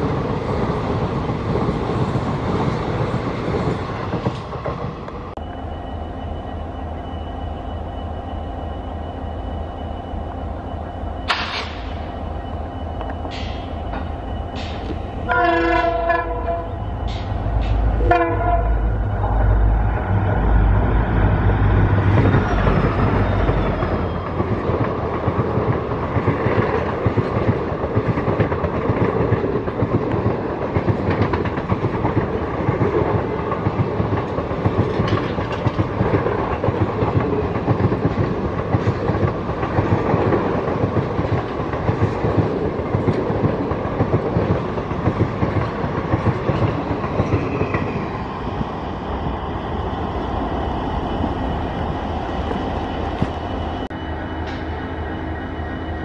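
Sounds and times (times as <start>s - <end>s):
train wheels clickety-clack: 0.0s - 5.4s, 13.0s - 16.2s, 21.8s - 49.4s
locomotive horn: 15.2s - 16.8s, 18.0s - 19.0s.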